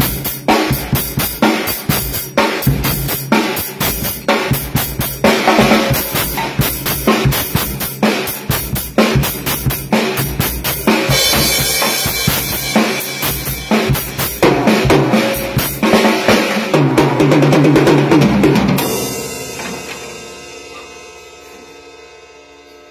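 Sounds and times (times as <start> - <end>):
acoustic drum kit playing: 0.0 - 22.4
cymbals ringing: 18.8 - 22.9.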